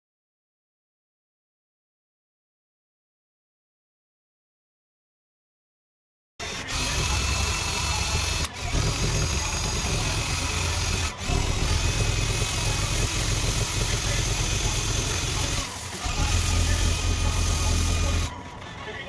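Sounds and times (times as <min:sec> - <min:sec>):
cordless drill motor hum: 0:06.4 - 0:18.3.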